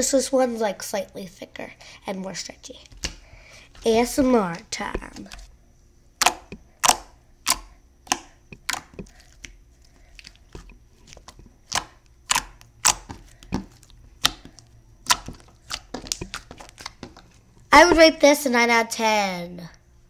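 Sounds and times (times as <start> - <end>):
slime popping clicks: 6.2 - 9.6, 11.3 - 13.2.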